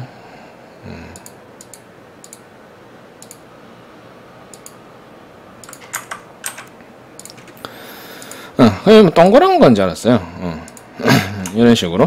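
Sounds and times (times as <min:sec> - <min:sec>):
computer mouse clicking: 0:01.2 - 0:02.4, 0:03.2 - 0:03.4, 0:04.5 - 0:04.8, 0:05.6 - 0:08.4, 0:10.7 - 0:11.6.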